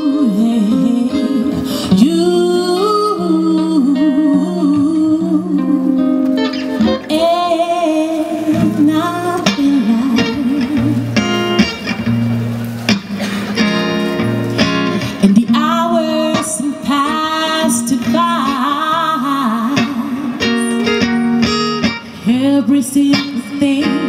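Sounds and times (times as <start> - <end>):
person singing long wavering notes: 0.0 - 6.2
plucked guitar: 0.0 - 24.0.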